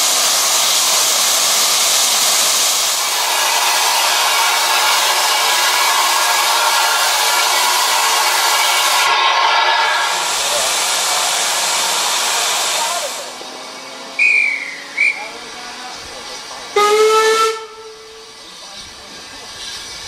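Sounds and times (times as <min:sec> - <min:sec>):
steam hissing: 0:00.0 - 0:20.0
steam whistle: 0:03.0 - 0:10.6, 0:14.2 - 0:15.3, 0:16.8 - 0:18.3
short high whistle blasts: 0:14.2 - 0:15.3.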